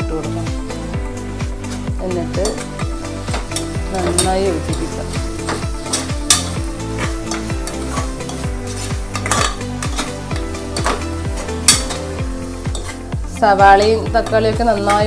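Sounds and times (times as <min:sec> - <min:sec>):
onions sizzling in a pot: 0:00.8 - 0:15.0
spoon stirring and scraping: 0:01.6 - 0:15.0
spoon clinking on pot: 0:05.4 - 0:11.0, 0:11.6 - 0:12.1, 0:12.7 - 0:13.0.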